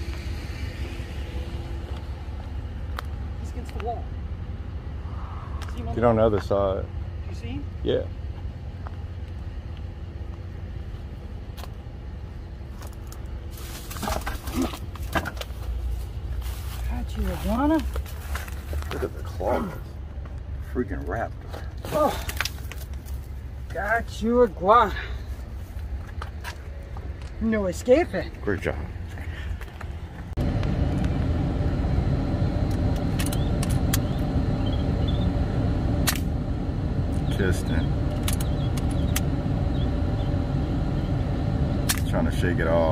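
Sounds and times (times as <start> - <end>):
steady low rumble: 0.0 - 42.9
vehicle engine idling: 0.0 - 42.9
shrubs rustling: 12.6 - 19.8
sharp clicks: 38.1 - 39.3.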